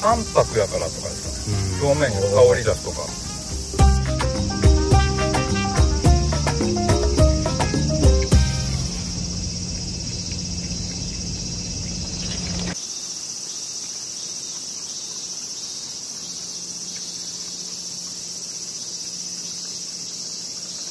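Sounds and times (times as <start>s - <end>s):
low outdoor rumble: 0.0s - 3.2s
insects chirring: 0.0s - 20.9s.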